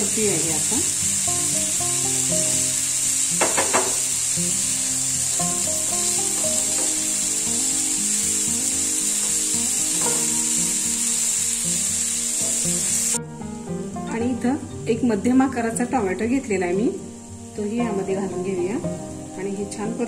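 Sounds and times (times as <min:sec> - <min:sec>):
soft background music: 0:00.0 - 0:20.0
vegetables sizzling in oil: 0:00.0 - 0:20.0
spatula knocking against pan: 0:03.4 - 0:04.0, 0:09.9 - 0:10.4.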